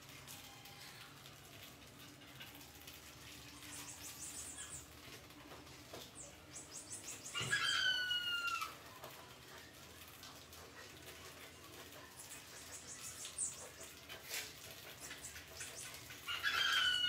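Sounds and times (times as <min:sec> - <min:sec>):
rat squealing: 0:15.7 - 0:17.0.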